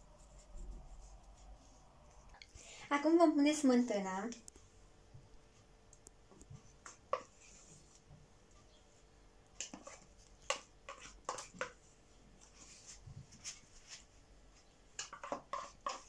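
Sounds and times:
metal spoon scraping a tub: 15.0 - 16.0.

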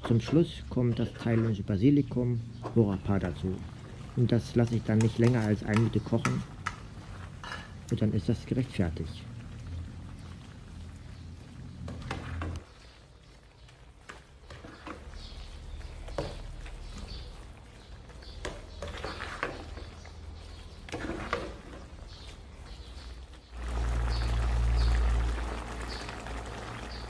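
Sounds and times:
curry bubbling: 0.0 - 27.0
spatula scraping a pan: 14.0 - 22.0.

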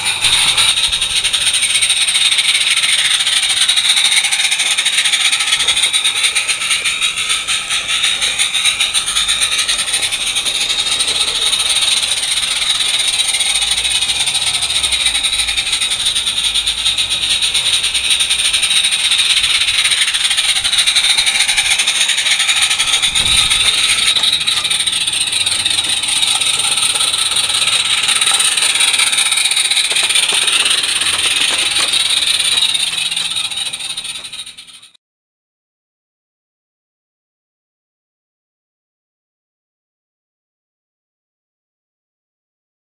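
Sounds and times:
steam hissing: 0.0 - 34.9
model train rattling on rails: 0.0 - 35.0.

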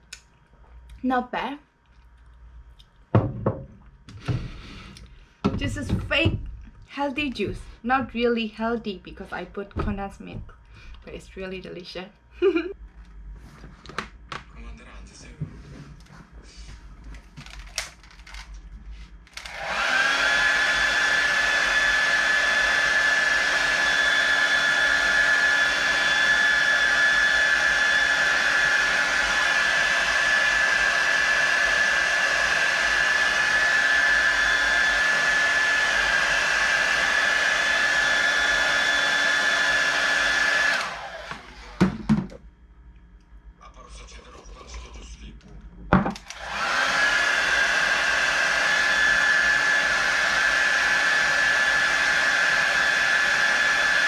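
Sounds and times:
small appliance motor whine: 19.2 - 42.0, 46.2 - 54.0.

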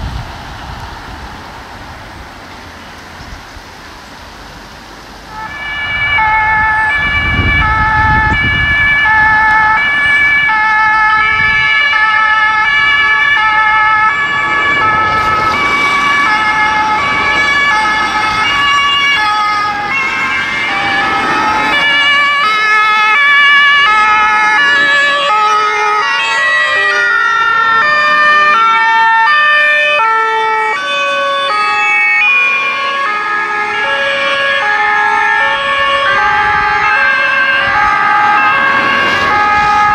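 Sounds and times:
two-tone emergency sirens: 5.2 - 39.9
low vehicle rumble: 10.9 - 26.1.

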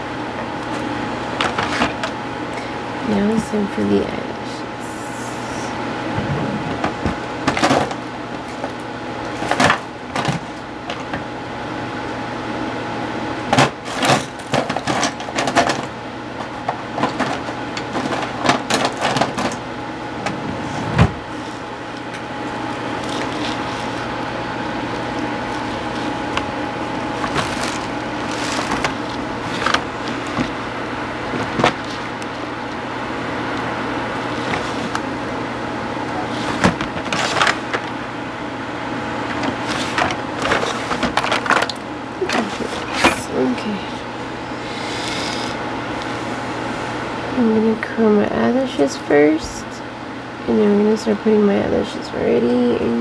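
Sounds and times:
steady low hum: 0.0 - 53.0
handling clicks and rustles: 24.9 - 30.6.

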